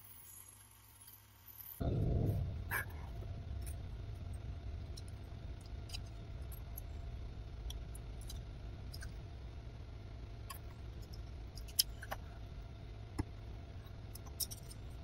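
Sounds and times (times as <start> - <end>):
low steady rumble: 1.8 - 15.0
small metal parts clicking: 14.1 - 15.0.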